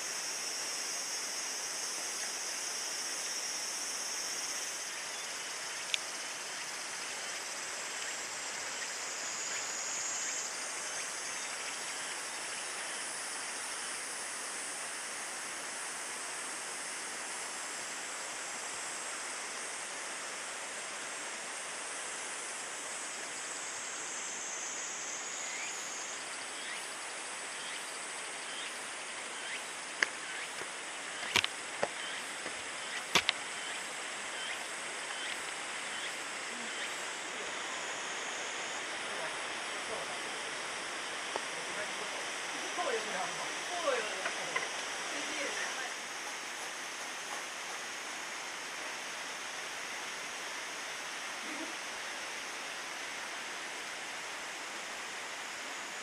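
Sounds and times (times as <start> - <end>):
high insect drone: 0.0 - 56.0
sharp clicks: 33.0 - 33.4.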